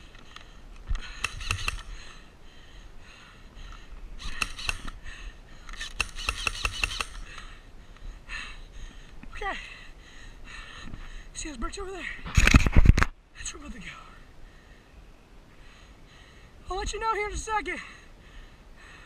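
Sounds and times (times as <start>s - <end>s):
airsoft guns firing bursts: 1.1s - 2.0s, 4.2s - 5.0s, 5.8s - 7.4s.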